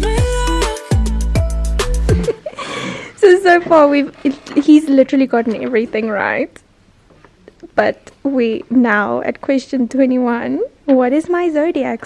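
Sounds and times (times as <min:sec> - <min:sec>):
music with deep bass and sliding melody: 0:00.0 - 0:02.4.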